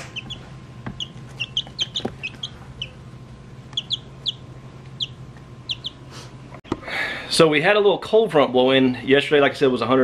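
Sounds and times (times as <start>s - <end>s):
chicks peeping: 0.0s - 3.0s, 3.6s - 6.3s
steady low hum: 0.0s - 9.8s.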